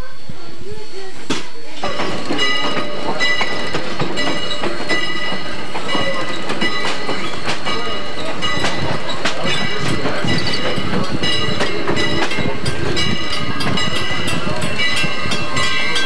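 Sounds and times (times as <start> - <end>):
train wheels clicking over rail joints: 1.3 - 16.0.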